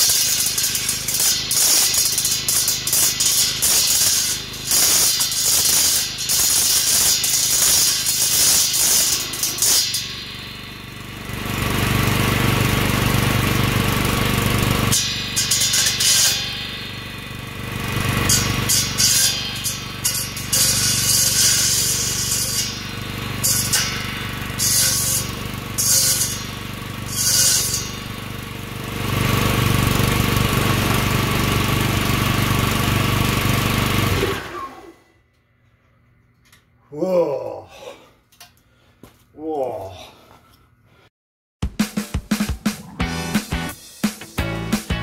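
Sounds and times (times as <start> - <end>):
board clattering against saw blades: 0.0 - 11.1, 12.6 - 34.8
small engine running: 0.0 - 35.1
small gas engine humming: 10.2 - 15.6, 27.9 - 35.0.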